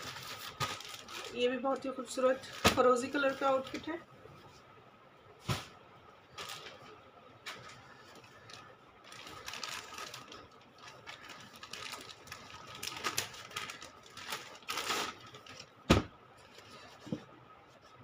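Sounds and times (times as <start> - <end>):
plastic packaging crinkling: 0.0 - 3.9, 6.3 - 15.9.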